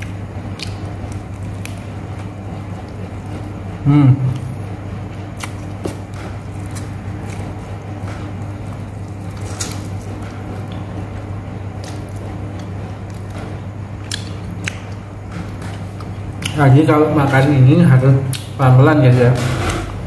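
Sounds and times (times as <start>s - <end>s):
chewing food: 0.0s - 3.6s, 5.2s - 16.6s
steady low hum: 0.0s - 20.0s
bones crunching: 5.4s - 10.8s.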